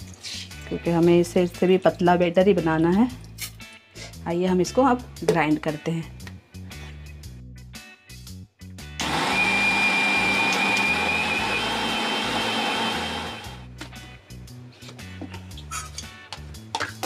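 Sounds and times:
background music: 0.0s - 17.0s
mixer grinder motor whining: 9.0s - 13.7s.

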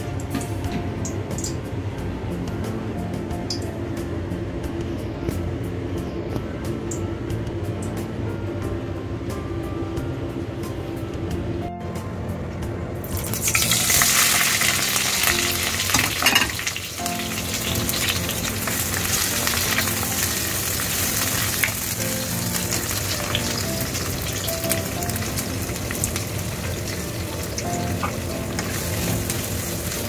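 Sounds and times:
vegetables sizzling in hot oil: 13.1s - 30.0s.

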